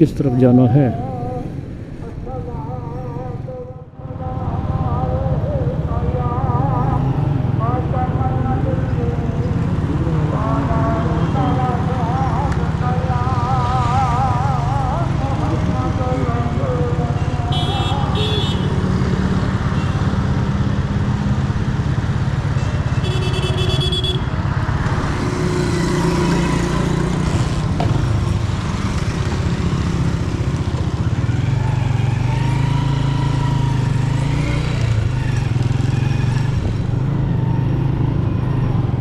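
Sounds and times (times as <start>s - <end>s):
wind and road noise: 0.0s - 39.0s
motorcycle engine running: 23.8s - 39.0s.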